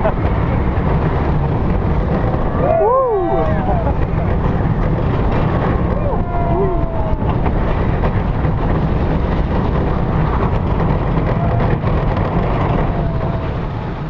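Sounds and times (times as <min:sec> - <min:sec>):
roller coaster wheels rumbling on rails: 0:00.0 - 0:14.0
wind rushing over microphone: 0:00.0 - 0:14.0.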